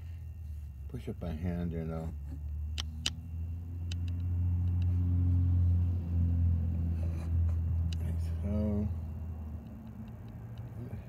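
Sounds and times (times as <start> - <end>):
low steady hum: 0.0 - 11.0
sharp metal clicks: 2.7 - 3.2, 3.8 - 4.9.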